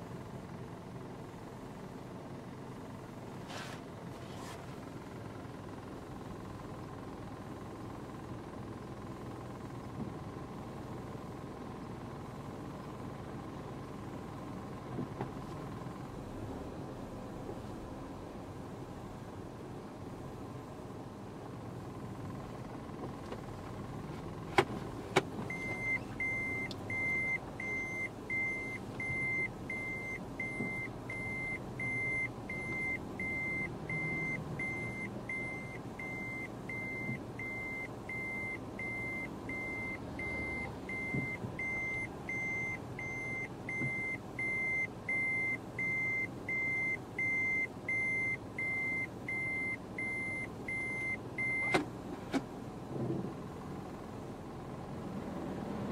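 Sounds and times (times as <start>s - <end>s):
low vehicle rumble: 0.0s - 55.9s
vehicle warning beeper: 25.5s - 51.8s.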